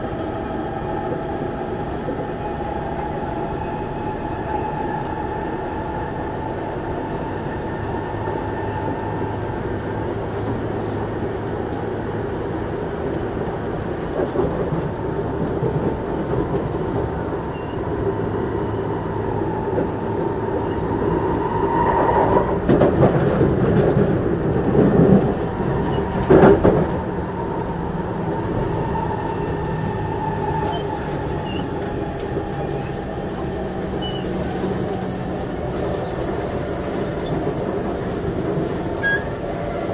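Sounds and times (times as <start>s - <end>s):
train rumble inside carriage: 0.0s - 39.9s
wheels rattling on track: 8.3s - 18.3s, 19.4s - 39.9s.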